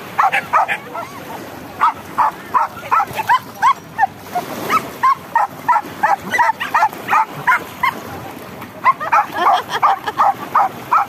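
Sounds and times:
small dog yipping: 0.2 - 1.1, 4.7 - 8.0.

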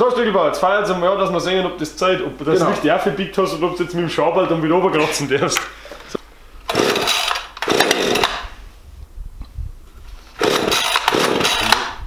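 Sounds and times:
chainsaw engine turning over: 6.7 - 8.6, 10.3 - 12.0.

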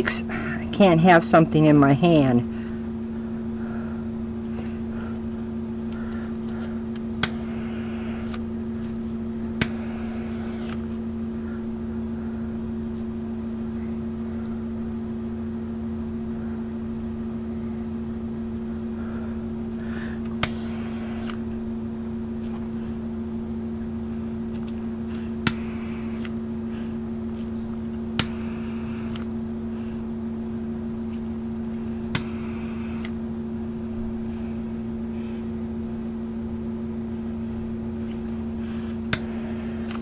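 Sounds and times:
electric fan hum: 0.0 - 40.0
torch igniter click: 7.0 - 8.4, 9.5 - 10.9, 20.2 - 21.4, 24.6 - 26.4, 28.0 - 29.3, 31.9 - 33.2, 39.0 - 40.0
torch flame hissing: 9.4 - 10.8.

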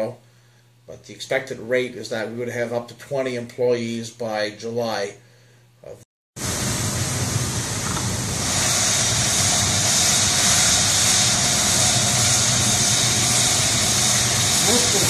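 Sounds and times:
constant low hum: 5.2 - 15.0
compressed air hissing: 6.4 - 15.0.

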